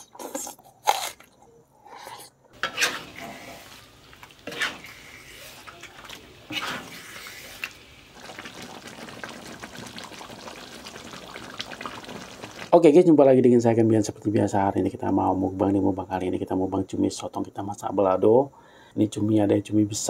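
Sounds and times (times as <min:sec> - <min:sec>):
sauce bubbling: 0:01.8 - 0:12.8
knocks and scrapes in pan: 0:02.5 - 0:03.8, 0:04.4 - 0:05.0, 0:06.5 - 0:07.0
sauce sizzling in a pan: 0:02.6 - 0:12.7.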